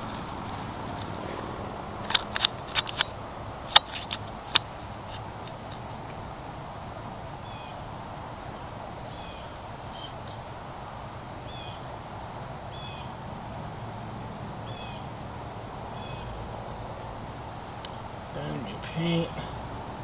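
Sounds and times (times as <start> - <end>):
background hiss: 0.0 - 20.0
thin high whine: 0.0 - 20.0
small bird chirping: 7.4 - 7.9, 9.0 - 10.6, 11.4 - 11.9, 12.6 - 13.2, 14.6 - 16.4.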